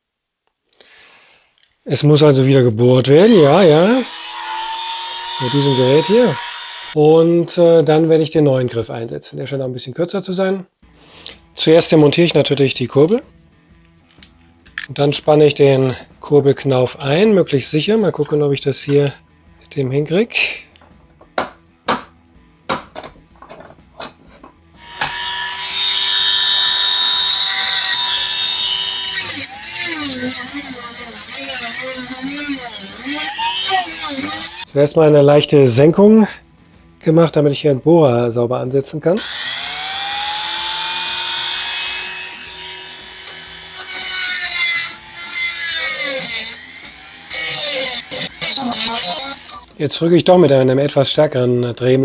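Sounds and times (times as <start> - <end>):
rotary tool high whine: 3.2 - 7.0, 24.8 - 34.6, 39.2 - 49.7.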